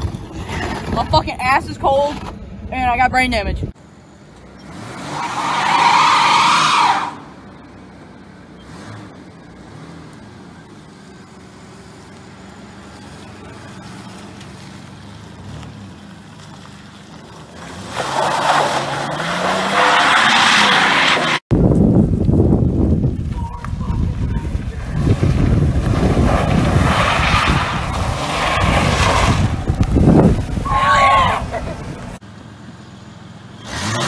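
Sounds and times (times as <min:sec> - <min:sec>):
engine running: 0:00.0 - 0:05.5, 0:06.3 - 0:20.0, 0:20.6 - 0:34.0
engine revving: 0:04.4 - 0:07.3, 0:08.6 - 0:11.0, 0:17.4 - 0:21.4, 0:24.3 - 0:32.2, 0:33.5 - 0:34.0
tyres squealing on asphalt: 0:04.5 - 0:21.4, 0:23.2 - 0:32.2.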